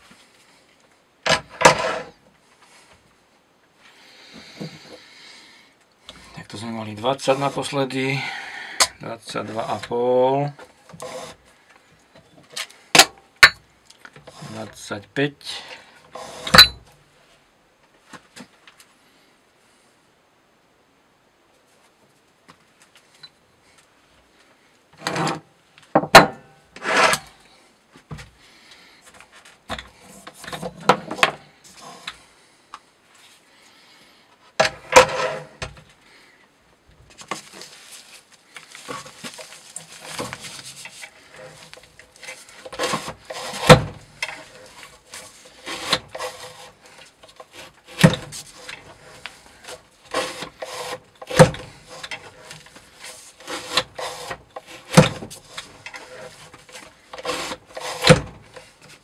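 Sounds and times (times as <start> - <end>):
wood rubbing and scraping: 1.3 - 3.0, 10.6 - 11.5, 16.1 - 16.7, 25.0 - 25.5, 26.8 - 27.4, 28.0 - 32.3, 34.6 - 35.8, 37.1 - 59.0.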